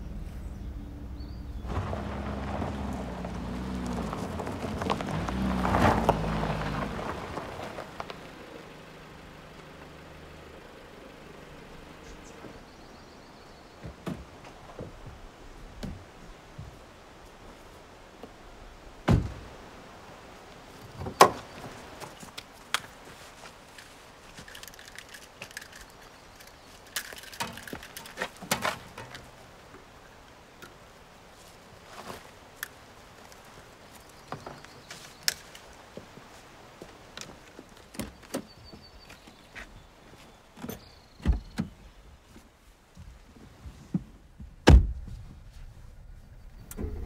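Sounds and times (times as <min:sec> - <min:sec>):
car doors and hoods thumping: 0:19.0 - 0:19.5, 0:44.6 - 0:45.1.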